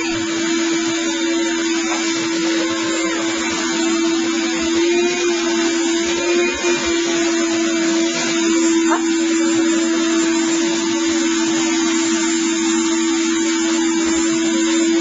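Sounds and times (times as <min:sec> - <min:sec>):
shop vac motor whine: 0:00.0 - 0:15.0.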